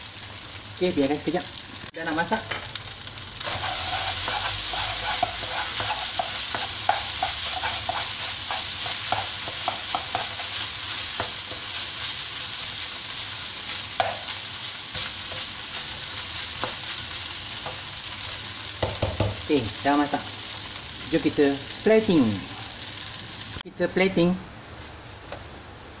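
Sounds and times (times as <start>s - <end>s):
rice sizzling in a wok: 0.0s - 23.7s
spatula scraping a pan: 3.4s - 11.9s.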